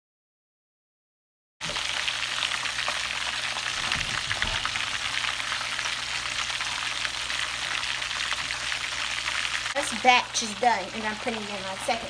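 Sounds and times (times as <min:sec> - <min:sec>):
oil sizzling and crackling: 0:01.6 - 0:12.0
low bump: 0:03.6 - 0:05.4.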